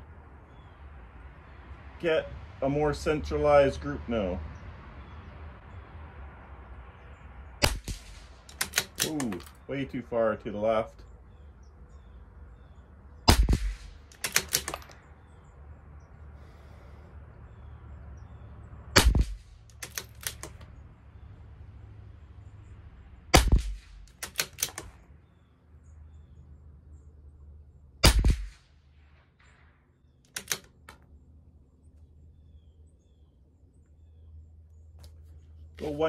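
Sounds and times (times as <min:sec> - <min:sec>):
rifle bolt clicks: 0:07.6 - 0:09.6, 0:13.4 - 0:15.0, 0:19.0 - 0:20.7, 0:23.5 - 0:25.0, 0:30.3 - 0:31.1
rifle shots: 0:07.6 - 0:09.6, 0:13.2 - 0:15.0, 0:19.0 - 0:20.5, 0:23.3 - 0:25.0, 0:28.0 - 0:29.6.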